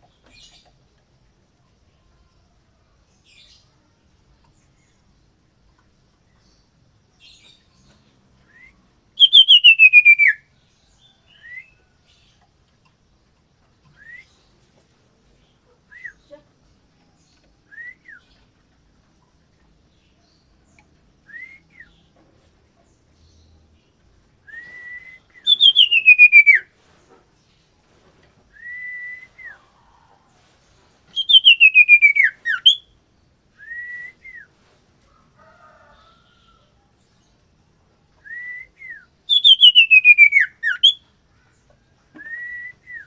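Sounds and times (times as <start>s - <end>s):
soft upslurred bird whistles: 8.4s - 10.5s, 13.9s - 14.5s, 15.9s - 16.4s, 21.2s - 22.0s, 24.4s - 26.7s, 28.5s - 30.2s, 31.1s - 34.5s, 38.2s - 41.0s, 42.1s - 43.0s
loud trilled bird whistles: 8.5s - 10.4s, 24.5s - 26.6s, 31.2s - 32.9s, 38.3s - 41.0s.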